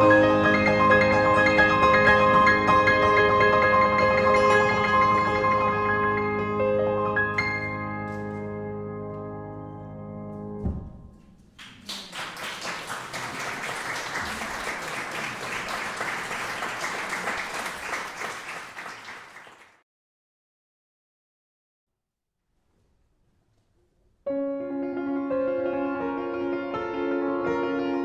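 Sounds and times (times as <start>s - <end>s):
audience applauding: 11.6s - 19.8s.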